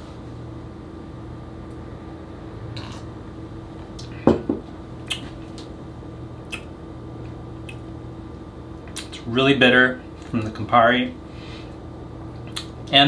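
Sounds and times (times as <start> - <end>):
low room hum: 0.0 - 13.0
glass set down on counter: 4.3 - 4.6.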